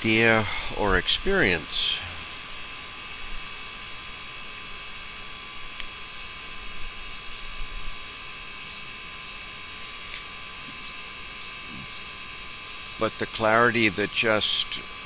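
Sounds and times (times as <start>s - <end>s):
electrical hum with high tones: 0.0s - 15.0s.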